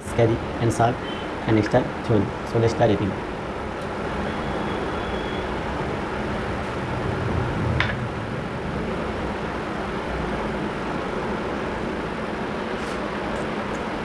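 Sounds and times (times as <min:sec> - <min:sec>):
background rumble and hiss: 0:00.0 - 0:04.2.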